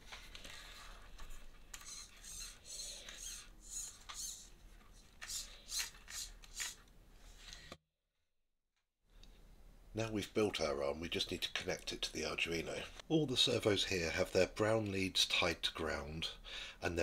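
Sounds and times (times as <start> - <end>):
plastic parts scraping and rubbing: 0.0 - 7.8.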